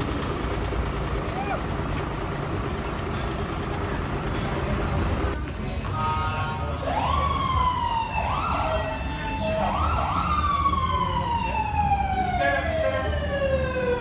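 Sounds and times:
siren wailing: 6.1 - 14.0.

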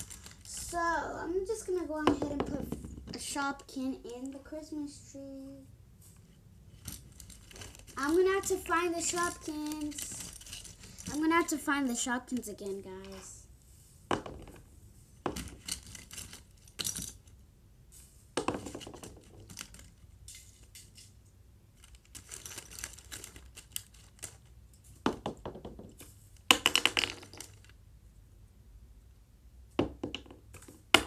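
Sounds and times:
plastic toys clicking and clattering: 0.0 - 4.4, 6.7 - 13.3, 15.3 - 17.4, 18.4 - 27.8.

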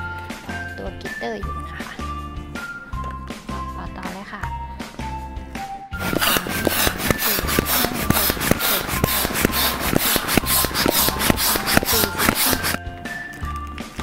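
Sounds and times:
hand pump rasping strokes: 6.0 - 12.8.

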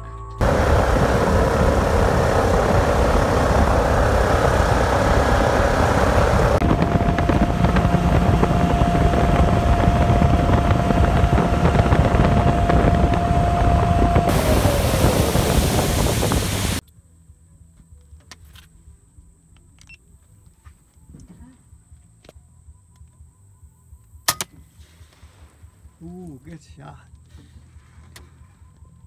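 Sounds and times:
wind: 0.0 - 29.0
jet boat engine: 0.4 - 16.8
steady whine: 0.4 - 16.8
rushing water: 14.2 - 16.8.

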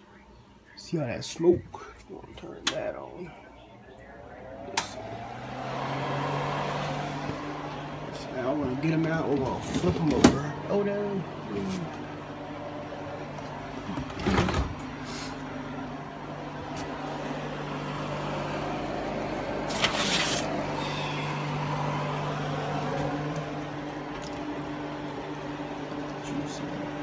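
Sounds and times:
kitchen fan humming: 0.7 - 27.0
higher hum: 14.8 - 27.0.

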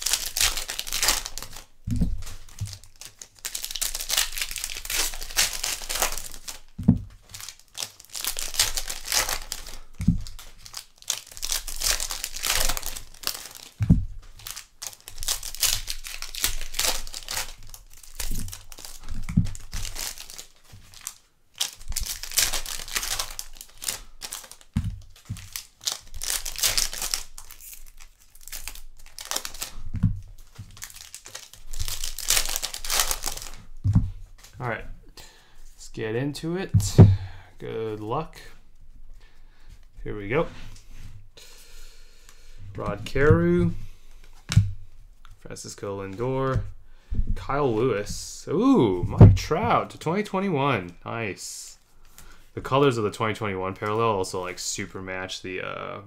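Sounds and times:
card wrappers tearing and crinkling: 0.0 - 34.6.

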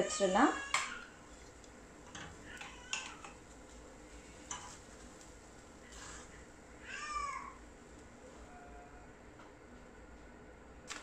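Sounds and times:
wooden spatula scraping a pan: 5.9 - 6.4.

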